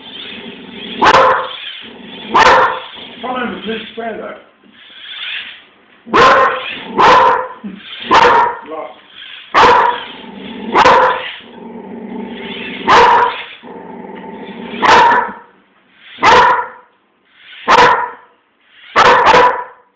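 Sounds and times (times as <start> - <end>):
dog barking: 1.0 - 1.6, 2.3 - 2.9, 6.1 - 8.7, 9.5 - 10.1, 10.7 - 11.4, 12.8 - 13.5, 14.8 - 15.5, 16.2 - 16.9, 17.6 - 18.3, 18.9 - 19.9.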